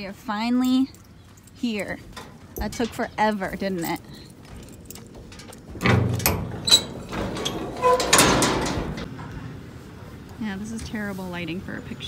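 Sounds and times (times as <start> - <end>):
metal door knocks and rattles: 4.6 - 9.1.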